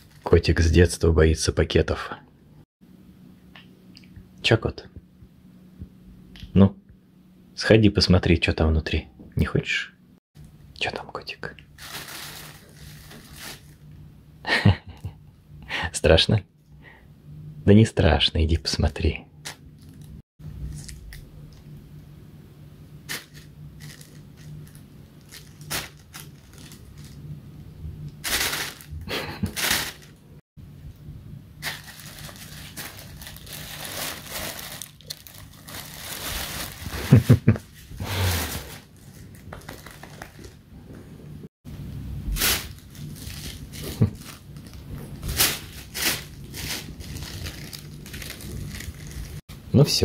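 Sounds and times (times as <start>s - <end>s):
plastic bag crinkling: 0.0s - 0.4s, 11.8s - 13.8s, 23.1s - 27.2s, 28.2s - 30.2s, 31.6s - 40.6s, 42.3s - 49.4s.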